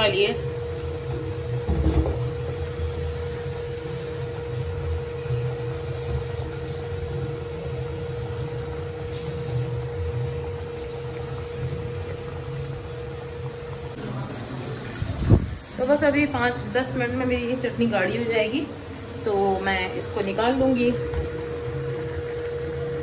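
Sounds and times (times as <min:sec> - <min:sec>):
thick sauce bubbling in a pot: 0:00.4 - 0:15.5.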